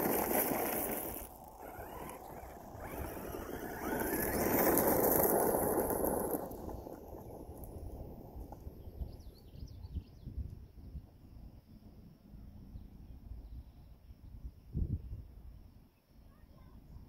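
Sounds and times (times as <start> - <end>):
toy car high whine: 0.0 - 9.1
faint bird chirps: 12.7 - 14.8.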